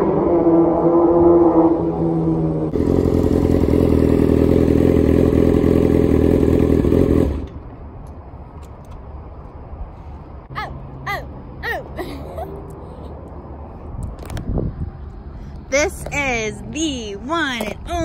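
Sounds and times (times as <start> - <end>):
motorcycle engine running: 2.7 - 7.6.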